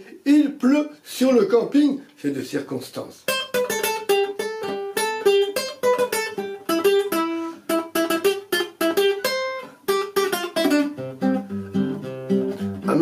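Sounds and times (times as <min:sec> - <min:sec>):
acoustic guitar plucked notes: 0:03.3 - 0:13.0.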